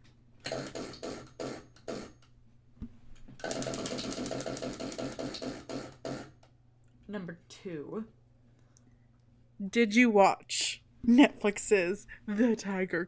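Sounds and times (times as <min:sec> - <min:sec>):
wheel clicks: 0:03.4 - 0:06.0.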